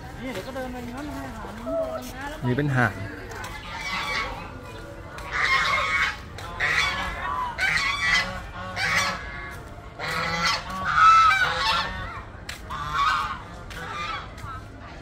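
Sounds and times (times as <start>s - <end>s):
geese honking: 3.3s - 14.7s.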